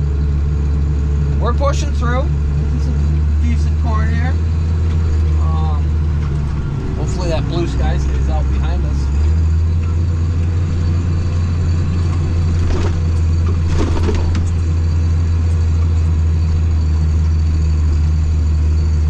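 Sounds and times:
tractor diesel engine droning: 0.0s - 19.0s
scratchy rattles: 11.6s - 15.6s.

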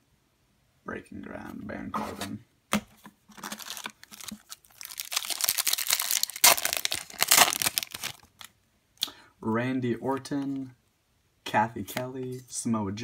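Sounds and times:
wrapper crinkling and tearing: 3.3s - 8.5s.

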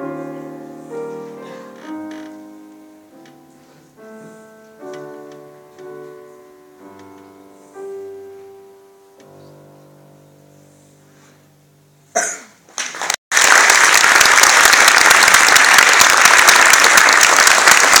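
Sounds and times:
grand piano chord: 0.0s - 12.1s
audience applause: 12.8s - 18.0s.

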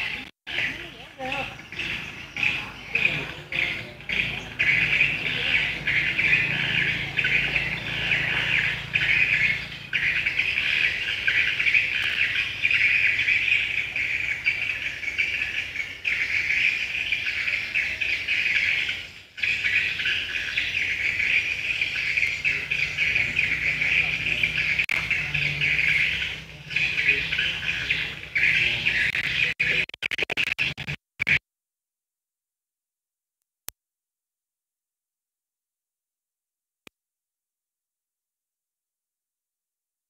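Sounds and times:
birds chirping: 0.0s - 31.4s.

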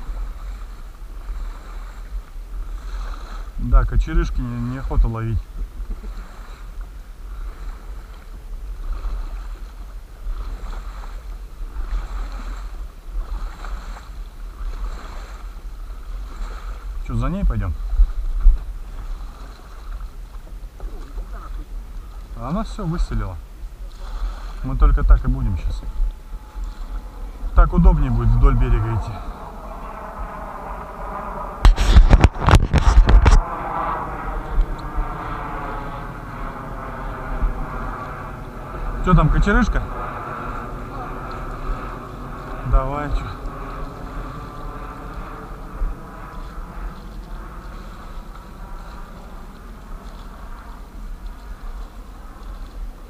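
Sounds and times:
outboard motor running: 0.0s - 53.0s
water splashing around boat: 0.0s - 53.0s
wind rumbling on microphone: 0.0s - 53.0s
loud bumps and rumbles: 30.8s - 33.6s.

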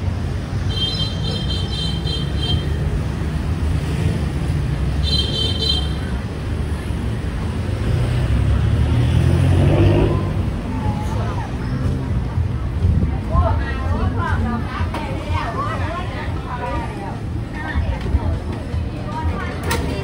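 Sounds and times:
low rumble of street traffic: 0.0s - 20.0s.

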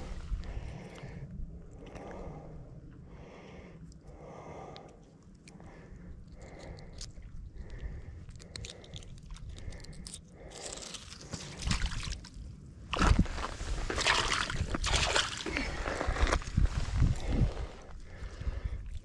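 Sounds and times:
water sloshing: 12.9s - 15.9s.

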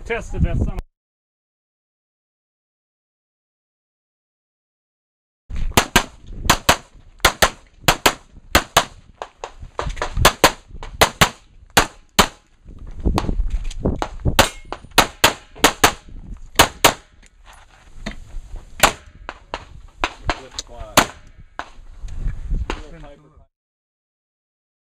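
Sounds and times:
handgun shots: 5.8s - 9.0s, 14.0s - 17.1s, 18.8s - 19.2s.

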